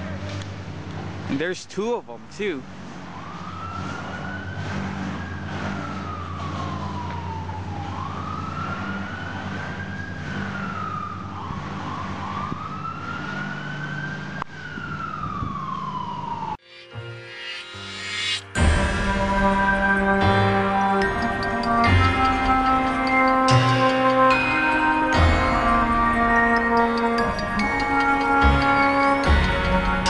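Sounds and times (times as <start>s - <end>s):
siren wailing: 2.7s - 30.0s
low hum: 14.2s - 30.0s.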